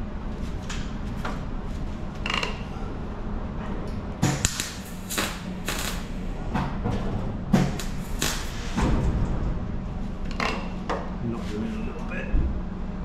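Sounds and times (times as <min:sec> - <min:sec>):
crackling welding bursts: 0:04.2 - 0:06.4, 0:07.6 - 0:08.8.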